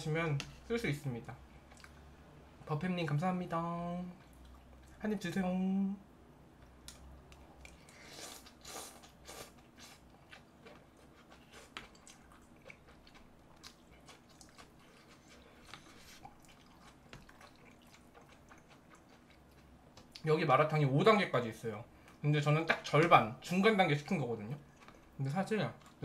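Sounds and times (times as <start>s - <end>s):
wet chewing: 6.9s - 20.2s, 24.6s - 25.2s
slurping noodles: 7.9s - 10.0s.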